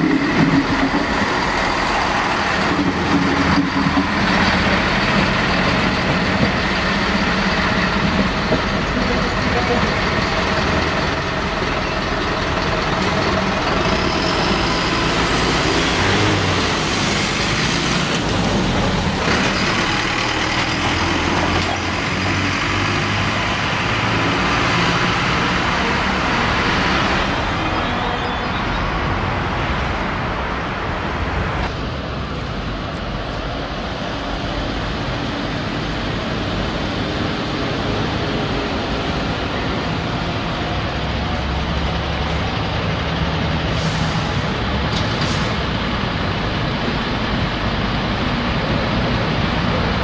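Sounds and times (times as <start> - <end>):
railcar diesel engine running: 0.0 - 50.0.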